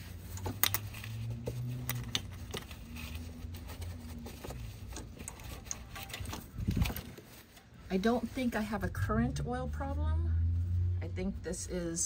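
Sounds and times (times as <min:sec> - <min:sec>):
clicks and scrapes against parts: 0:00.0 - 0:07.7
paper towel rustling and rubbing: 0:00.0 - 0:09.1.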